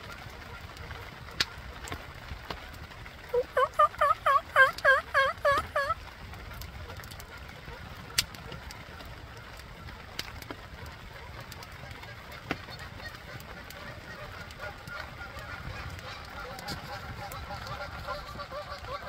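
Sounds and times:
geese honking: 0:03.3 - 0:06.0, 0:06.8 - 0:19.0.

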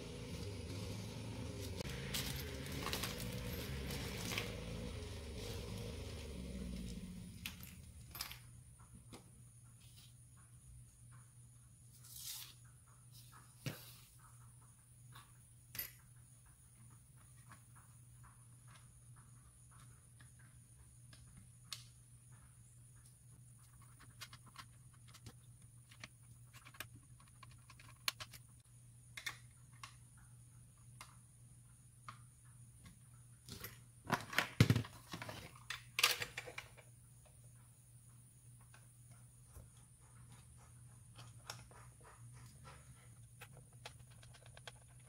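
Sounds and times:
plastic knocking and rattling: 0:34.1 - 0:35.6, 0:41.2 - 0:45.0.

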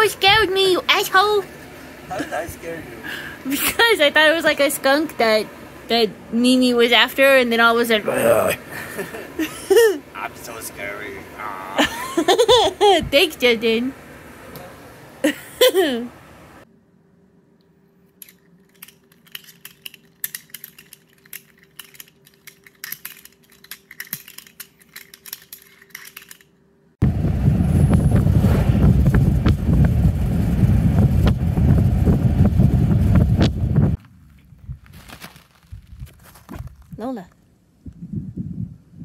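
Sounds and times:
faint steady hum: 0:00.0 - 0:28.2
loud low noise: 0:27.0 - 0:34.0.

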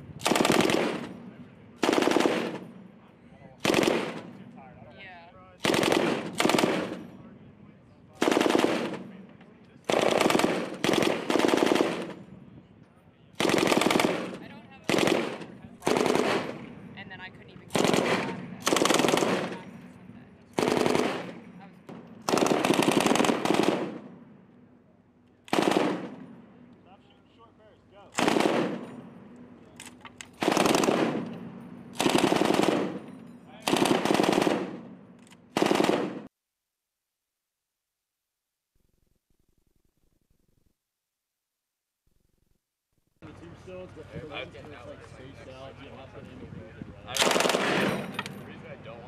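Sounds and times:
machine gun firing bursts: 0:00.2 - 0:01.2, 0:01.8 - 0:02.7, 0:03.6 - 0:04.3, 0:05.6 - 0:07.0, 0:08.2 - 0:09.1, 0:09.9 - 0:12.2, 0:13.4 - 0:16.8, 0:17.7 - 0:19.7, 0:20.6 - 0:24.2, 0:25.5 - 0:26.4, 0:28.1 - 0:29.0, 0:30.4 - 0:36.3, 0:47.2 - 0:48.1.

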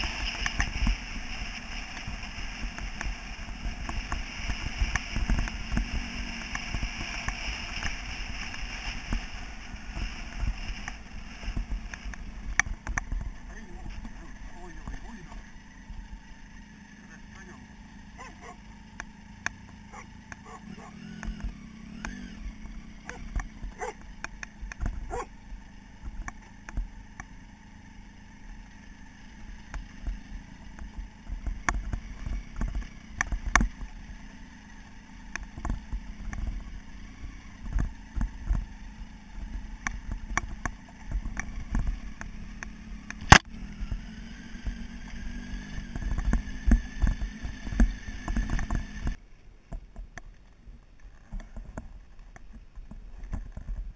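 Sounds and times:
motorcycle engine running slowly: 0:00.0 - 0:53.9
sharp click: 0:42.2 - 0:43.5.

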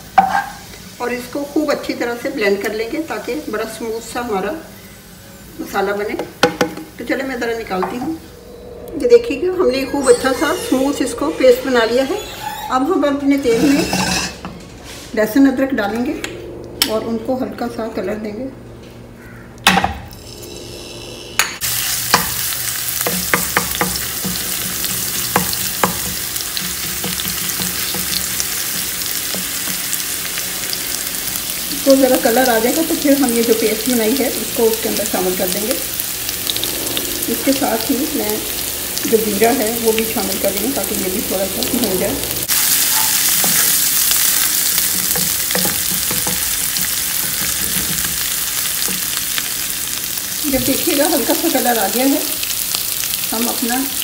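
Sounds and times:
garlic sizzling in hot oil: 0:00.0 - 0:08.2, 0:20.2 - 0:54.0
wooden spatula scraping pan: 0:13.3 - 0:15.1.

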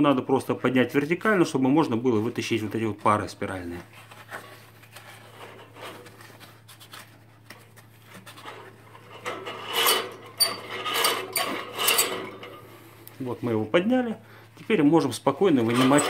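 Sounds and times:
metal lever scraping and rattling: 0:08.3 - 0:12.8, 0:15.5 - 0:16.0.

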